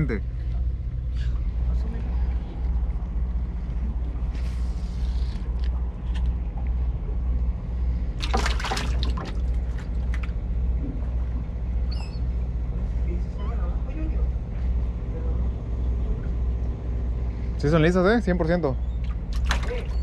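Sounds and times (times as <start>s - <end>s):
water splashing: 8.2s - 10.4s, 19.0s - 20.0s.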